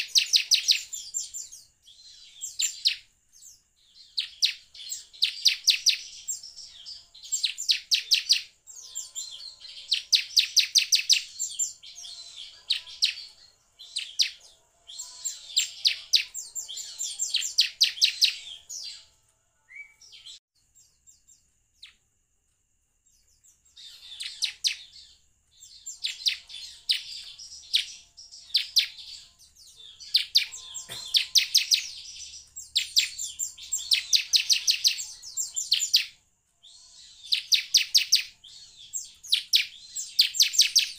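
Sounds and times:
bird chattering trills: 30.1s - 36.0s.

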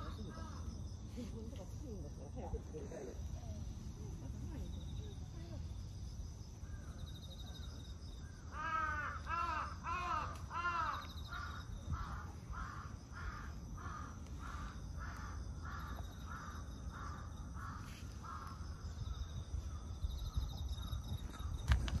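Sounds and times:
crow cawing: 8.5s - 18.8s.

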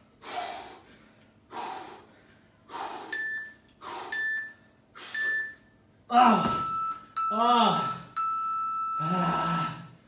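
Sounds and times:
man breathing hard: 0.2s - 3.2s, 3.8s - 4.3s
short electronic beeps: 3.2s - 5.8s, 6.6s - 9.1s.

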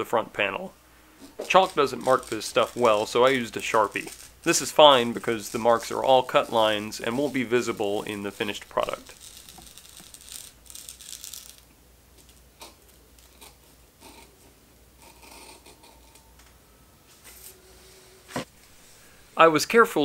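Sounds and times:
shear blades clicking: 1.4s - 10.2s
shears snipping fabric: 1.4s - 10.8s.

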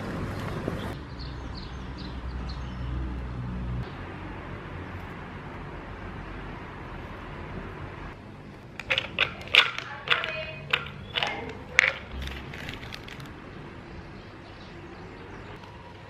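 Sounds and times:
almonds clattering into bowl: 8.8s - 13.3s.

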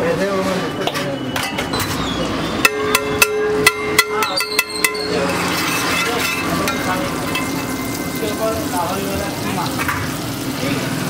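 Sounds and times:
spatula tapping griddle: 2.6s - 8.5s
butter sizzling on griddle: 5.3s - 11.0s.

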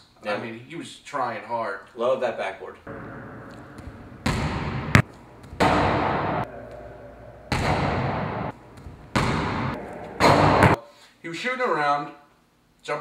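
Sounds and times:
basketball bang in echoing gym: 2.9s - 10.8s.

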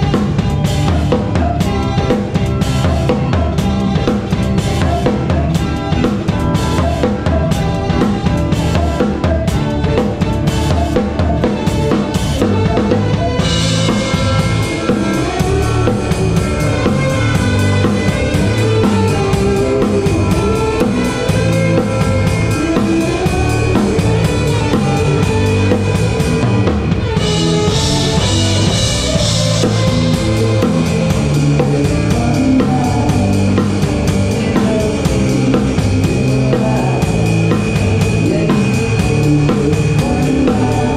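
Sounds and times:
live band playing: 0.0s - 40.9s.

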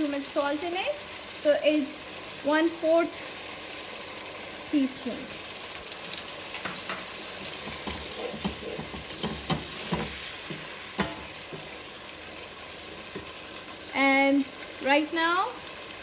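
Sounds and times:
food sizzling in frying pan: 0.0s - 16.0s
wooden spatula scraping pan: 6.8s - 11.8s.

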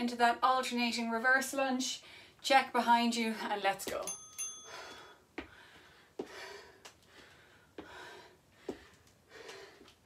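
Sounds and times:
woman breathing hard: 4.6s - 10.0s.

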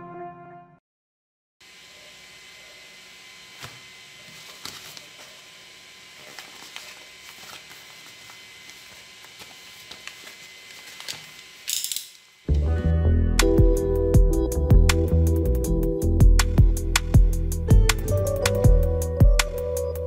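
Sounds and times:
padded mailer crinkling: 3.6s - 5.5s, 6.1s - 11.6s.

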